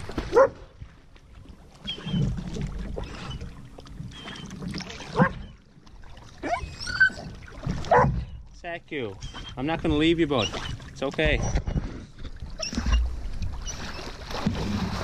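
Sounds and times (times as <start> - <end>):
canoe paddle strokes in water: 0.0 - 15.0
dog whining and whimpering: 6.4 - 7.3, 11.4 - 11.8, 12.6 - 13.0.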